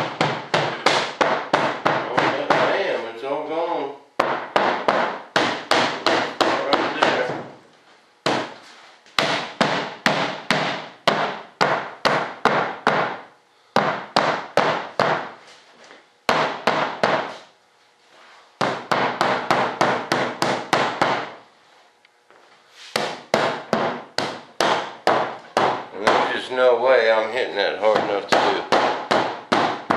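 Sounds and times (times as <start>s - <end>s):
mallet tapping on a mold: 27.9s - 29.9s.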